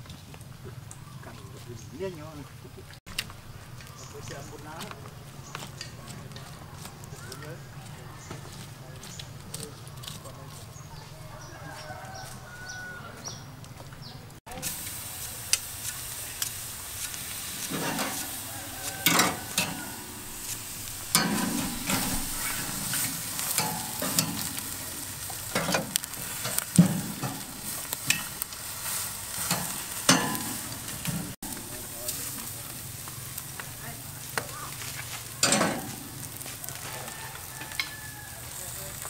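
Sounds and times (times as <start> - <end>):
beef sizzling on grill: 3.1 - 13.4, 14.4 - 39.0
metal tongs clacking on grate: 14.6 - 32.4, 35.4 - 38.1.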